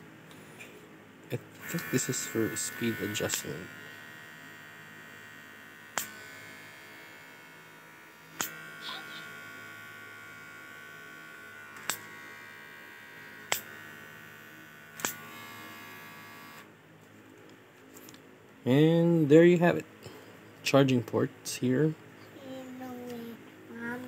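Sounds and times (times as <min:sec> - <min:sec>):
electric hair clipper buzzing: 0:01.5 - 0:16.7.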